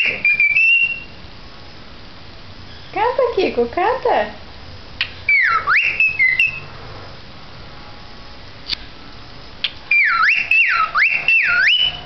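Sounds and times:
cockatiel whistling: 0:00.0 - 0:01.2, 0:05.3 - 0:06.7, 0:09.9 - 0:12.0.

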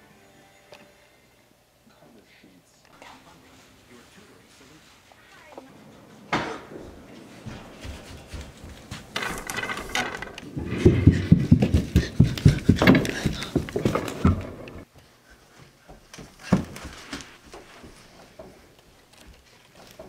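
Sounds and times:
footsteps on carpeted stairs: 0:05.0 - 0:20.0.

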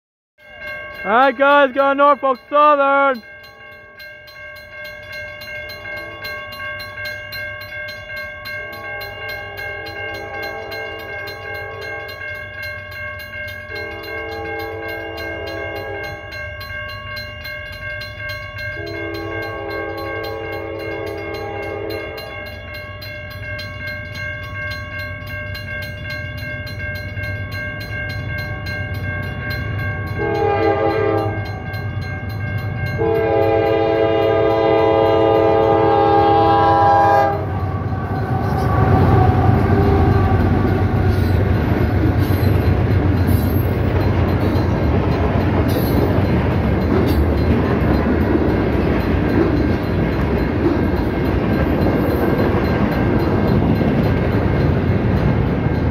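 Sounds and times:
crossing warning bells ringing: 0:00.4 - 0:55.9
train rumble: 0:04.6 - 0:55.9
locomotive air horn blasts: 0:13.8 - 0:16.2, 0:18.8 - 0:22.3, 0:30.2 - 0:31.4, 0:33.0 - 0:41.2.

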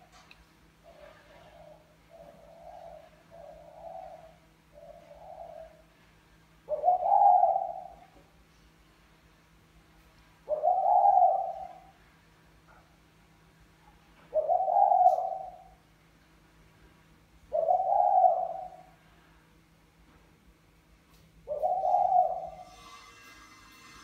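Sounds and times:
dove cooing: 0:00.8 - 0:05.9, 0:06.7 - 0:08.2, 0:10.5 - 0:12.0, 0:14.3 - 0:15.8, 0:17.5 - 0:19.1, 0:21.5 - 0:22.8.

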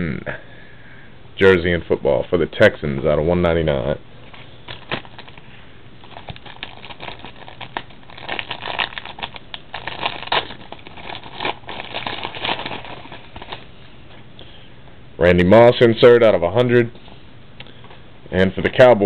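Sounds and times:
card wrapper crinkling: 0:04.2 - 0:13.8.

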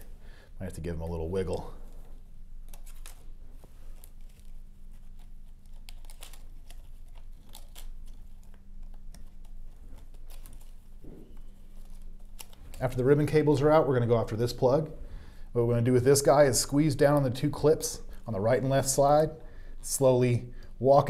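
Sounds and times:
faint low hum: 0:00.0 - 0:21.0
ribbon cables clicking and rustling: 0:01.5 - 0:13.4.

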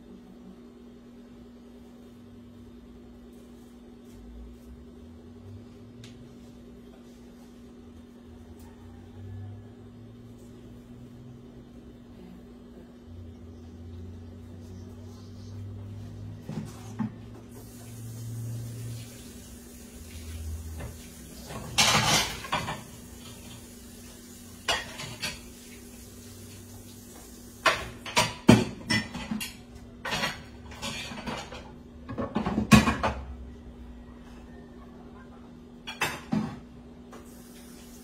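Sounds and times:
dishes and cutlery clattering: 0:21.4 - 0:23.6, 0:24.6 - 0:25.6, 0:27.6 - 0:33.3.

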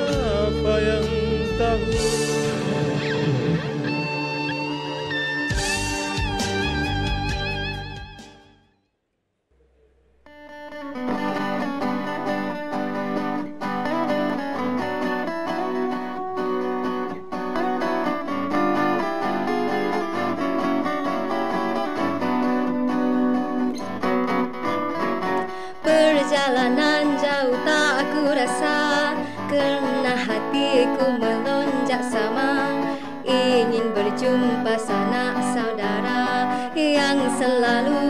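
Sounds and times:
song playing: 0:00.0 - 0:08.6
acoustic guitar backing track: 0:00.0 - 0:08.7, 0:10.2 - 0:38.0.

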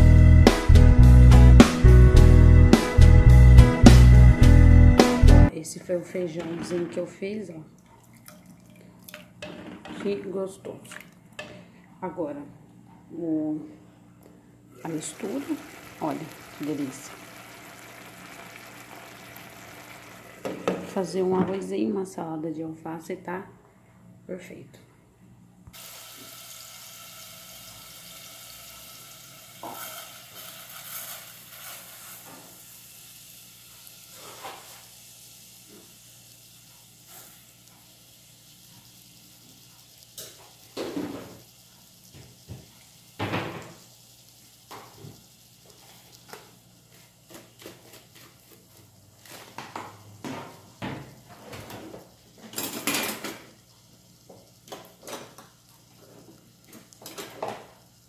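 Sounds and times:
food sizzling in a pan: 0:14.8 - 0:21.2, 0:25.7 - 0:58.0.

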